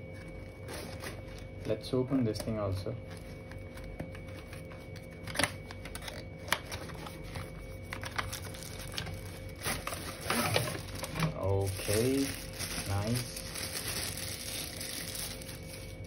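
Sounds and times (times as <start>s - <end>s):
cardboard rustling and scraping: 0.0s - 1.6s, 5.9s - 16.0s.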